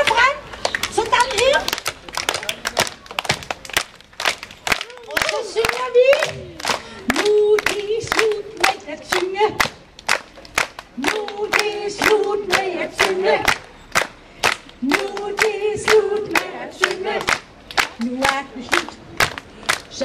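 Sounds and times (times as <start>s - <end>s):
audience clapping along: 0.0s - 20.0s
group of voices singing: 5.4s - 9.8s, 11.0s - 13.7s, 14.5s - 20.0s.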